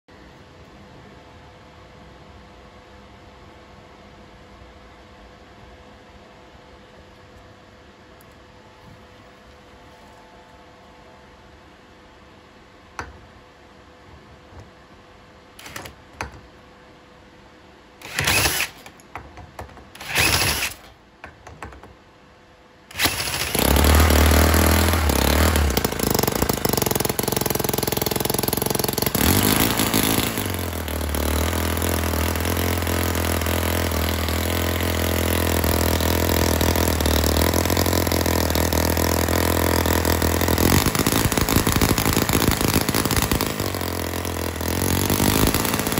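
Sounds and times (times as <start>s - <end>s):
model engine running: 18.0s - 18.9s, 20.0s - 20.9s, 22.9s - 45.9s.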